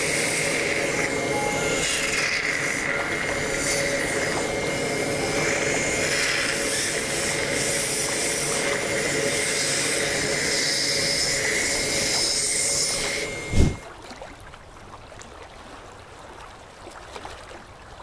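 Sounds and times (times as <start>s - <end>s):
dental suction hiss: 0.0s - 13.8s.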